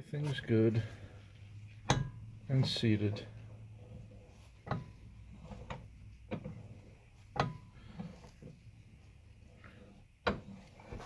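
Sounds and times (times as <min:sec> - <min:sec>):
metal part clicking and knocking: 0:01.8 - 0:02.2, 0:07.3 - 0:07.7.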